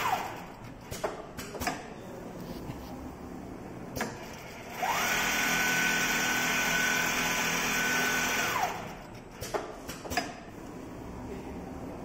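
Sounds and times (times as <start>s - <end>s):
sewing machine whining: 4.2s - 9.1s.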